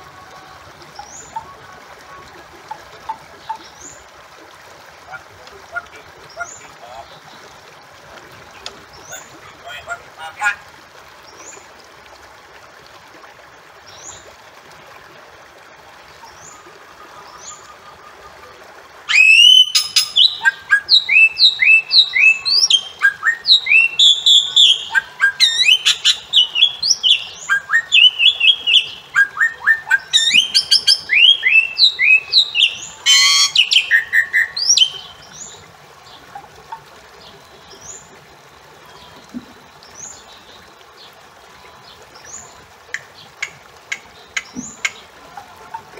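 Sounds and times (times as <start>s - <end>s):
bird calling: 8.6s - 10.6s, 19.1s - 35.3s
harsh bird squawk: 9.1s - 10.6s, 19.1s - 35.0s.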